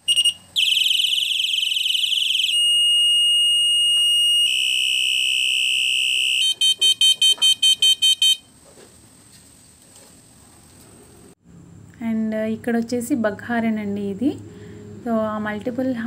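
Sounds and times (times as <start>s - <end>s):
electronic bicycle horn tones: 0.0s - 8.5s.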